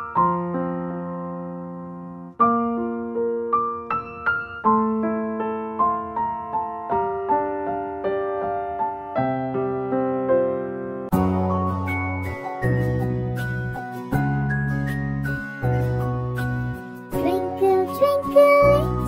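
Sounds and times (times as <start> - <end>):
piano-like keyboard melody: 0.0 - 19.0.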